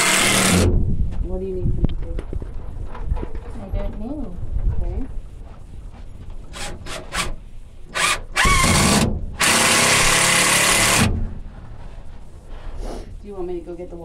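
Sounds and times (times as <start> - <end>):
cordless drill into wood: 0.0 - 0.7, 6.5 - 11.1.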